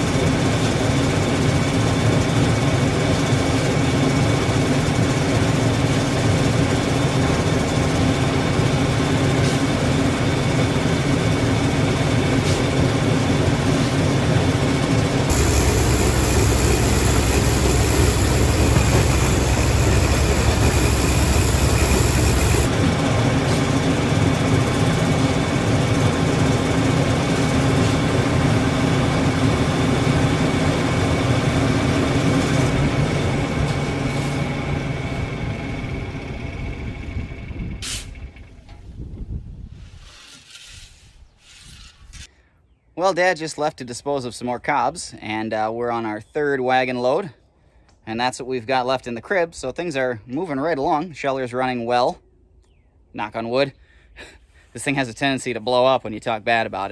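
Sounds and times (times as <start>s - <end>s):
corn sheller running: 0.0s - 30.2s
tractor engine drone: 0.0s - 38.9s.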